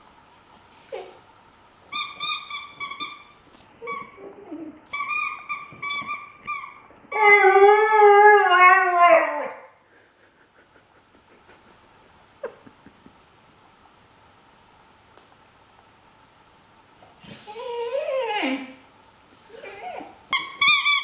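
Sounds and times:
puppy whining: 0.7 - 1.3, 1.9 - 9.7, 17.2 - 21.0
puppy howling: 7.1 - 9.7.

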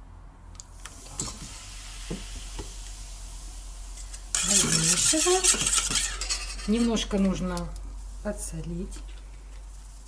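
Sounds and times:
baking soda fizzing: 0.8 - 6.4, 7.9 - 10.0
spoon scraping a steel bowl: 4.3 - 7.1.

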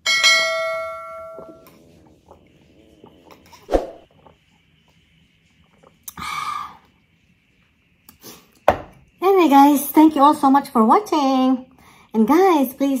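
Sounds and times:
person gulping: 1.4 - 4.4.

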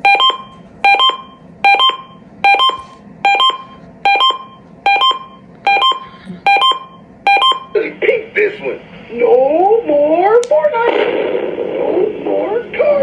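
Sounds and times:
scanner alert beeps: 0.0 - 7.8.

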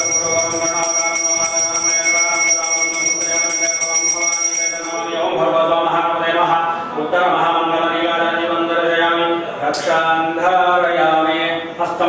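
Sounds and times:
hand bell ringing rapidly: 0.0 - 5.2
man chanting: 0.0 - 12.0.

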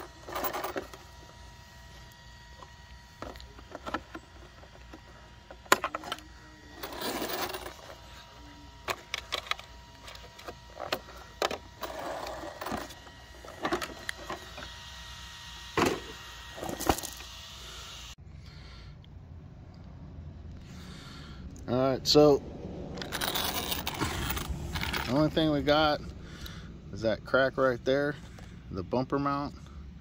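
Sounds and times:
plastic rattling and scraping: 3.2 - 8.1, 8.8 - 14.6, 23.0 - 25.3.

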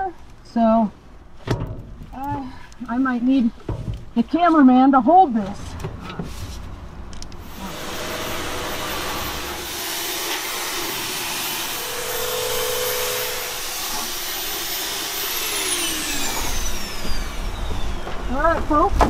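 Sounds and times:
high motor whine: 5.4 - 18.5
fogger motor hissing: 7.4 - 18.3.

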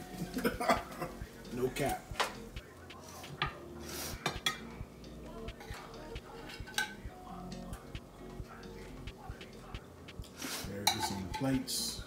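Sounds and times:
skillet and utensils clinking on plates: 6.5 - 7.0, 10.7 - 11.6.

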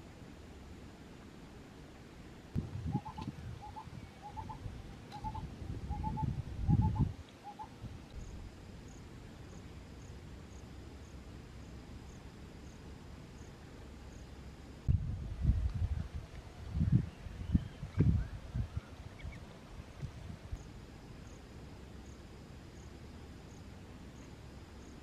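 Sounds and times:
bird calling double notes: 2.9 - 7.7.

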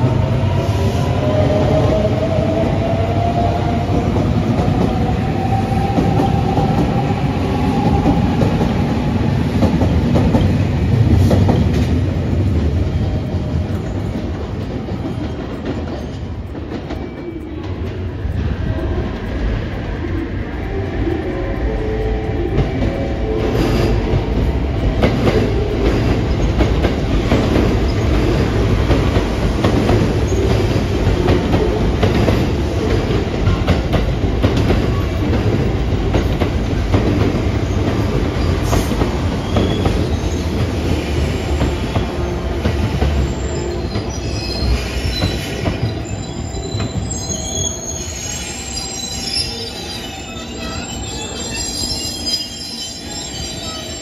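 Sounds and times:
train rumbling past: 0.0 - 54.0
high-pitched train squeal: 18.7 - 24.5, 38.4 - 54.0.

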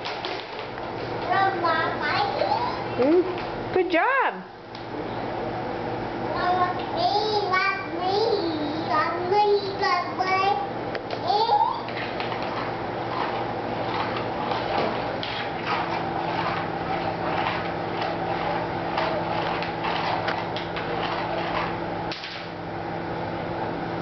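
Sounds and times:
utensil scraping wooden floor: 11.3 - 22.5.

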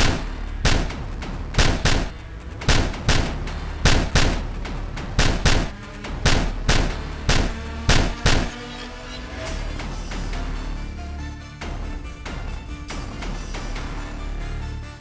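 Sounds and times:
gunshot sound effects: 0.0 - 4.5, 5.2 - 8.6.

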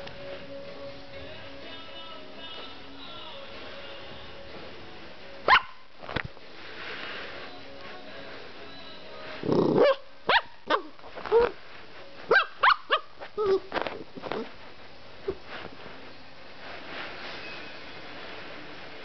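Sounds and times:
puppy barking: 5.5 - 5.8, 9.7 - 11.6, 12.3 - 13.6.

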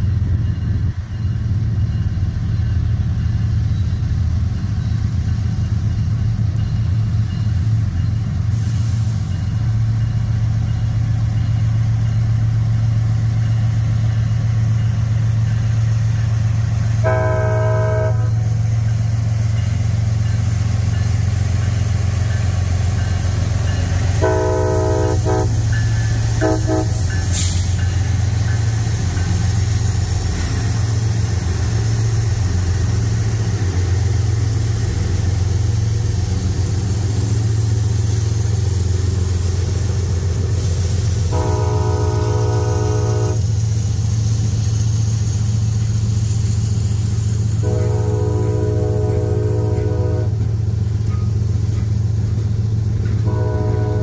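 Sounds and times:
diesel locomotive engines droning: 0.0 - 54.0
train air horn blasts: 17.0 - 18.6, 24.2 - 25.7, 26.4 - 27.6, 41.2 - 43.5, 47.6 - 50.5, 53.2 - 54.0.

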